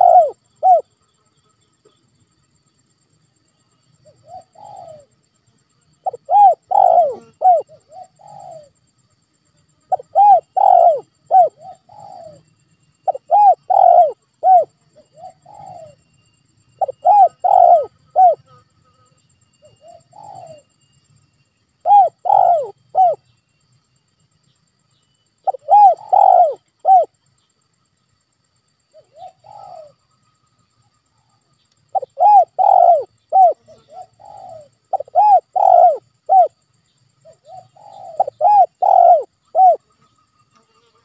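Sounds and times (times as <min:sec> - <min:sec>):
dove cooing: 0:00.0 - 0:00.9, 0:04.1 - 0:05.1, 0:06.0 - 0:08.8, 0:09.9 - 0:16.0, 0:16.8 - 0:18.5, 0:19.6 - 0:20.7, 0:21.8 - 0:23.2, 0:25.4 - 0:27.1, 0:28.9 - 0:30.0, 0:31.9 - 0:36.6, 0:37.2 - 0:39.8.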